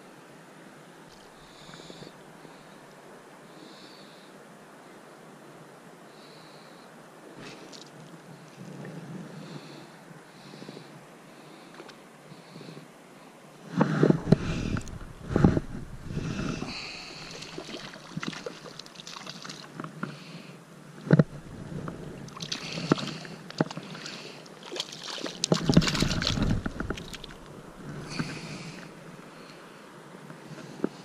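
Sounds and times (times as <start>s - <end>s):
wind and handling knocks on microphone: 13.8s - 16.8s, 21.0s - 22.2s, 25.5s - 28.5s
fish splashing in water: 16.6s - 19.7s, 22.2s - 28.9s.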